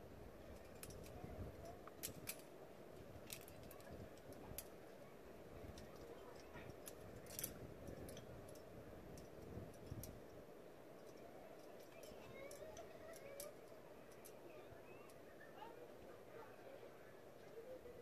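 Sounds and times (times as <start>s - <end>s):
carabiners clinking together: 0.6s - 2.5s, 3.2s - 4.7s, 5.8s - 10.2s, 11.0s - 14.4s.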